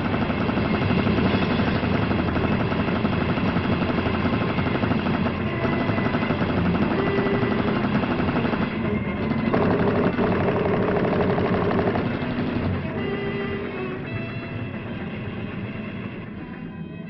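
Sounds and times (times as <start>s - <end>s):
cartoon mechanical rattling clatter: 0.0s - 12.9s.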